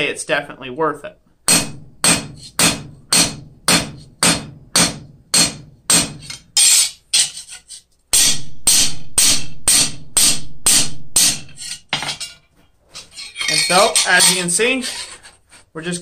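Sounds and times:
hammer striking steel on anvil: 1.5s - 7.0s, 8.1s - 12.4s.

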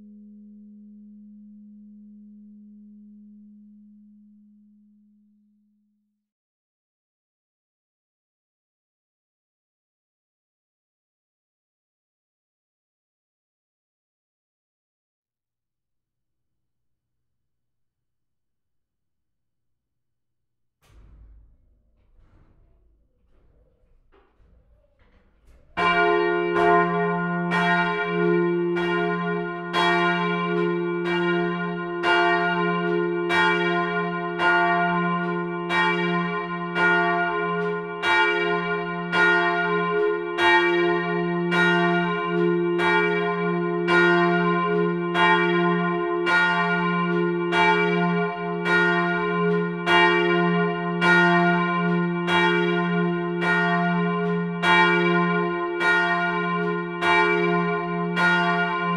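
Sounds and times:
low hum: 20.8s - 27.0s
church bells ringing: 23.3s - 58.9s.

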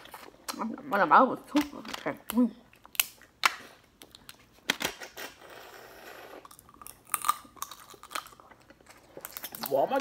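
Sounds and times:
shellfish shells cracking: 2.2s - 5.2s, 6.5s - 10.0s.

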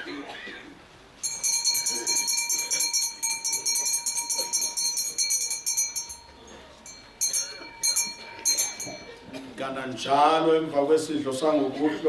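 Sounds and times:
altar bells jingling: 1.2s - 10.2s.

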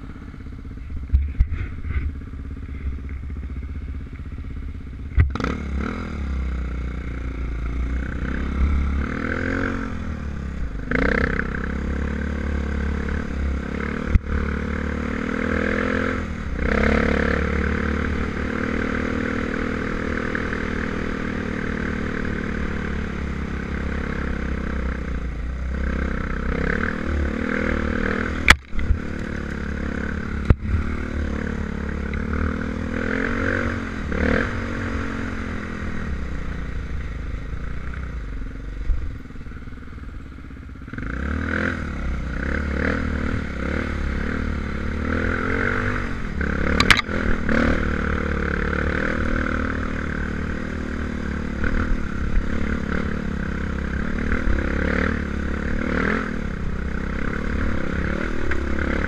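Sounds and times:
dirt bike engine revving: 5.1s - 36.5s, 40.9s - 59.0s.

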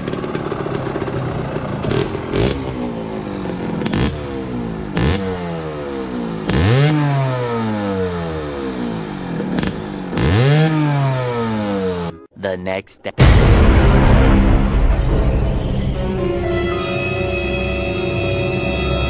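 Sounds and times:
motorcycle engine revving: 0.0s - 12.3s.

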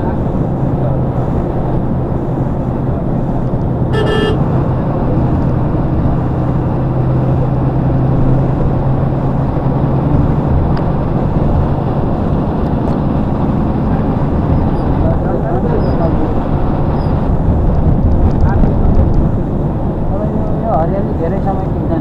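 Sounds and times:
car engine and tyre drone: 0.0s - 22.0s
short high beep: 3.9s - 4.4s.

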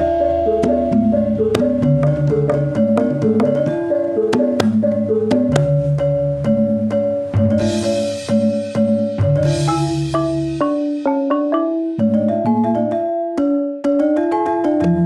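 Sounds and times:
metallophone melody: 0.0s - 15.0s
sharp drum strokes: 6.8s - 12.2s.

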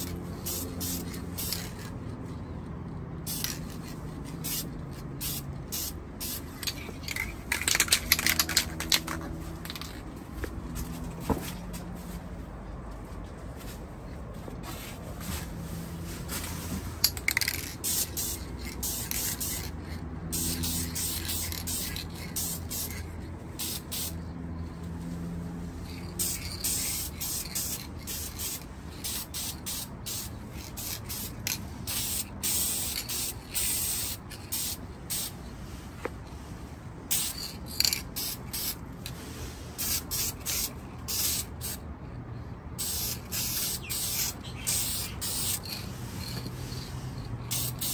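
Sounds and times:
spray paint can hissing: 0.0s - 2.0s, 3.2s - 10.1s, 16.6s - 24.2s, 25.8s - 35.5s, 37.1s - 41.8s, 42.8s - 47.9s.

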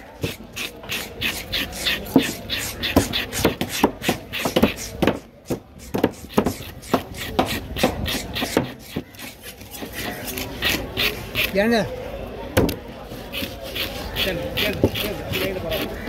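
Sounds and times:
knife cutting on wooden board: 0.2s - 11.6s.

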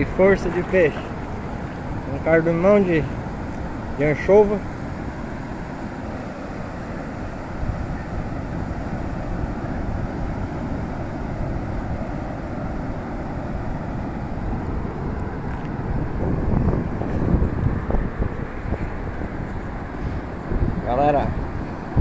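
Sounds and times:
surf washing on beach: 0.0s - 22.0s
wind buffeting microphone: 0.0s - 22.0s.

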